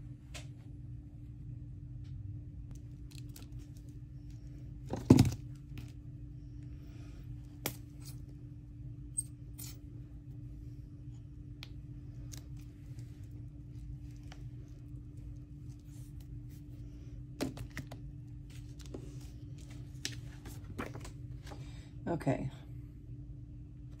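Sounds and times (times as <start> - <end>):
steady low hum: 0.0 - 24.0
paper and craft supplies handled: 17.4 - 21.6.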